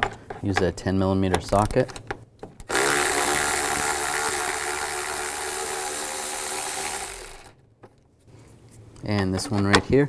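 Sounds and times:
electric ratchet motor whirring: 2.6 - 7.6.

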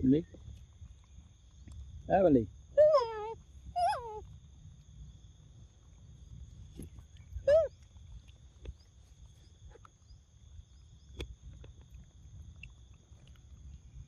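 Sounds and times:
wet chewing clicks: 0.5 - 1.9, 6.7 - 10.1, 11.1 - 14.0
monkey squeaking: 2.8 - 4.2, 7.5 - 7.7.

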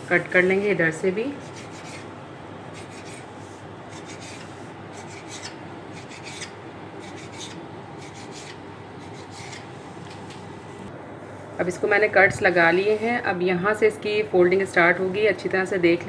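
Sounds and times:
knife blade scraping stone countertop: 5.0 - 9.7.

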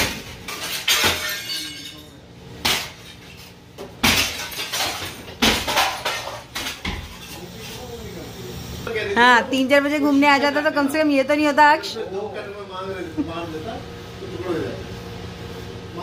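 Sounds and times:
glass shattering: 0.5 - 3.0, 4.0 - 6.9
tool hitting glass: 4.0 - 7.0.

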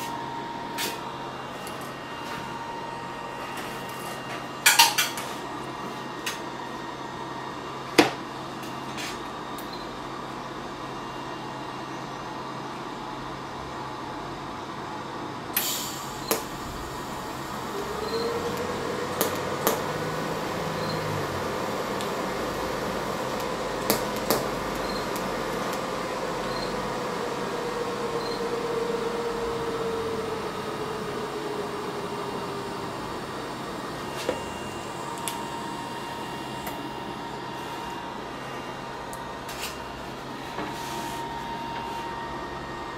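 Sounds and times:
faint welder hum: 15.5 - 42.9
welding arc hissing: 15.6 - 30.5.

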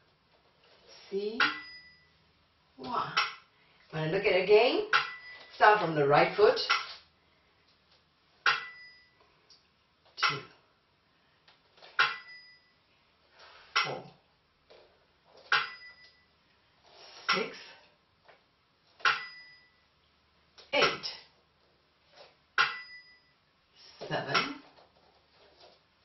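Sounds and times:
small cymbal-bell ringing: 1.5 - 2.1, 8.6 - 9.2, 12.1 - 12.8, 15.6 - 16.2, 19.1 - 19.8, 22.7 - 23.4.

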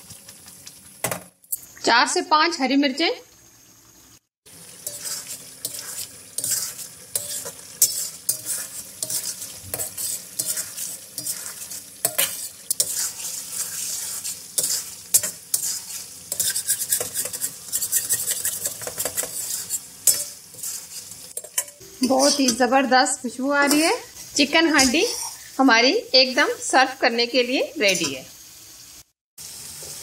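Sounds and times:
frying sizzle: 0.0 - 30.0
metal spatula scraping pan: 4.8 - 22.8, 23.5 - 25.5.

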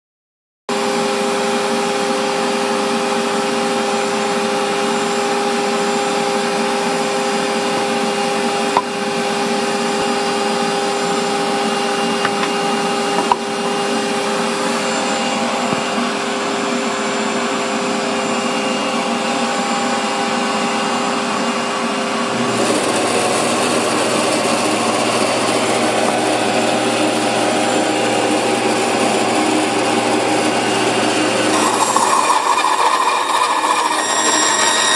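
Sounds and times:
band saw running: 22.2 - 34.9.

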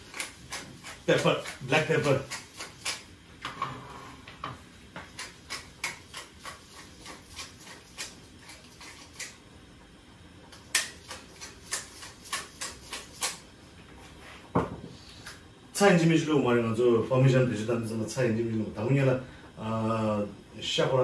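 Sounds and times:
pepper mill grinding: 0.0 - 3.1, 5.1 - 9.4, 10.6 - 13.4.

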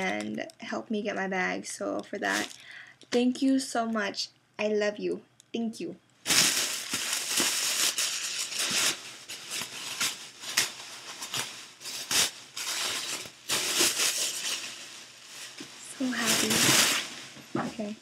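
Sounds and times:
packing material crinkling: 0.0 - 0.4, 2.1 - 2.9, 6.2 - 18.0.

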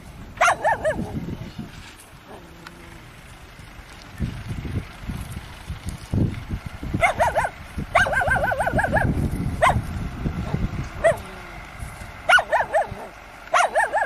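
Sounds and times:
low rumble: 0.0 - 13.6
dog yelping: 0.4 - 1.2, 7.0 - 9.8, 10.4 - 11.5, 12.3 - 14.0.

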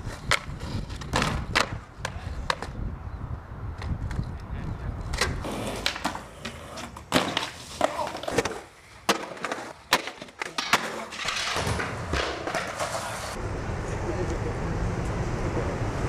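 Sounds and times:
skateboard wooden clacks: 0.0 - 2.8, 3.8 - 13.3
wheels rolling on hard ground: 3.7 - 16.0.

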